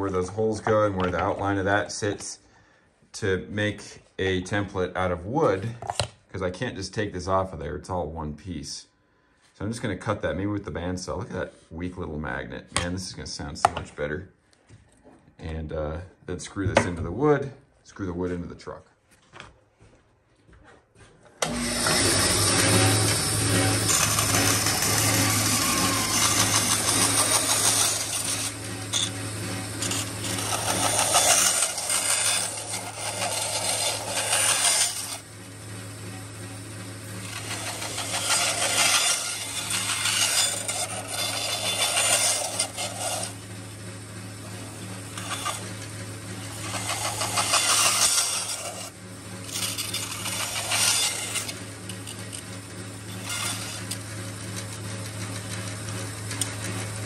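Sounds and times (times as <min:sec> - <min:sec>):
saw blade cutting plastic: 0:21.4 - 0:35.3, 0:36.6 - 0:43.5, 0:44.4 - 0:55.6
bandsaw motor hum: 0:21.4 - 0:57.0.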